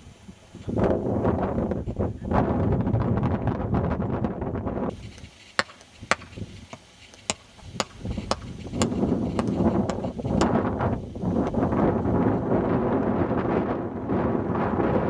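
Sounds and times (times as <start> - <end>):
wind buffeting microphone: 0.0 - 15.0
sharp knocks: 5.6 - 10.5.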